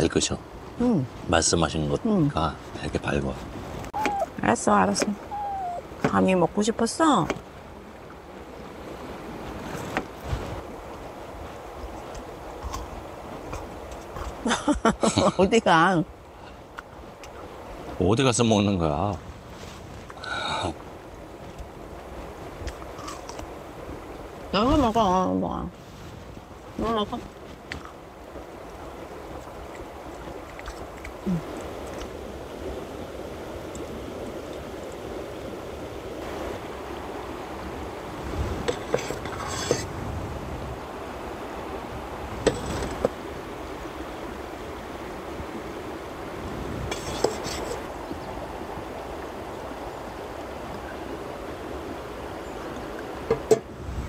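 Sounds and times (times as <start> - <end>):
river rushing: 0.0 - 14.5, 15.3 - 54.0
cutlery and dishes clinking: 38.7 - 39.9.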